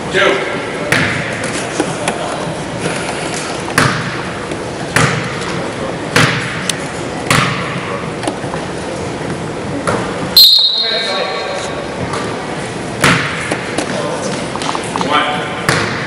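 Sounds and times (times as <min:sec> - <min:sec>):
basketball bouncing on gym floor: 0:00.8 - 0:01.4, 0:03.7 - 0:04.3, 0:04.9 - 0:07.8, 0:13.0 - 0:13.8, 0:15.4 - 0:16.0.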